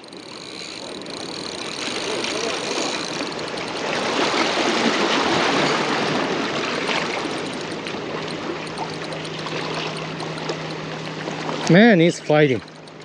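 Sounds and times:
small waves lapping against rocks: 3.8s - 7.2s.

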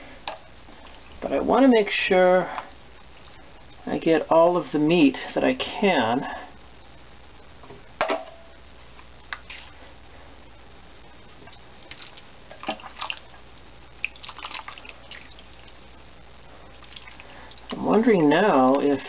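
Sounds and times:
broth dripping and splashing: 2.6s - 3.8s, 11.8s - 15.9s, 16.7s - 19.0s.

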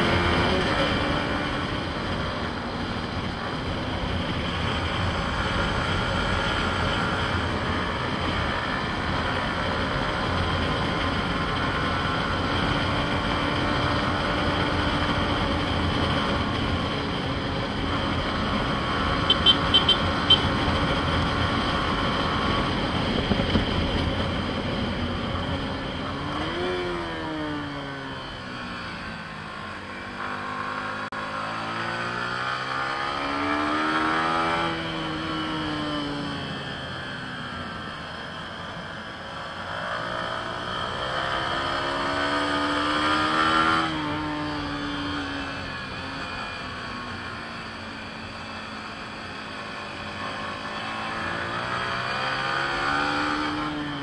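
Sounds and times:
wind noise: 0.0s - 27.2s
motorcycle engine running: 0.0s - 54.0s.

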